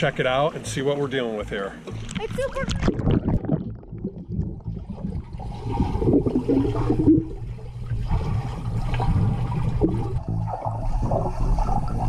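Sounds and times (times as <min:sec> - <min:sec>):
underwater rumble of moving water: 0:00.0 - 0:12.0
bubbly gurgling: 0:01.9 - 0:12.0.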